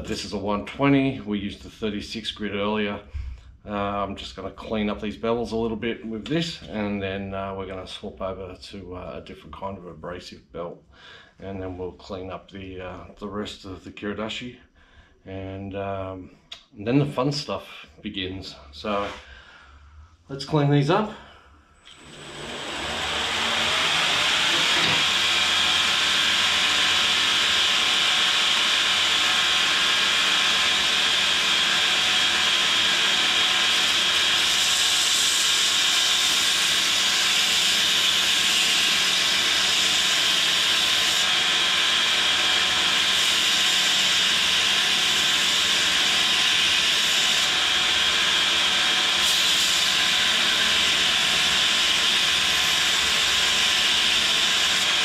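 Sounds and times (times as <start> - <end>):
belt grinder grinding steel: 21.8 - 55.0.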